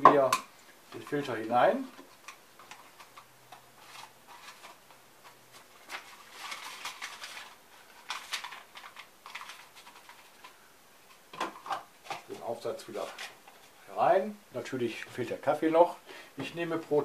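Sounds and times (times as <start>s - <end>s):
paper filter rustling: 2.1s - 11.2s.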